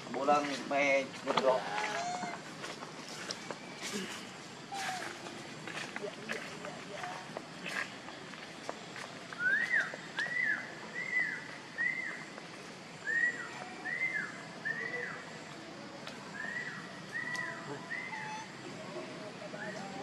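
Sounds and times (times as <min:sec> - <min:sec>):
whistle-like animal calls: 0:13.0 - 0:15.2, 0:16.4 - 0:18.6.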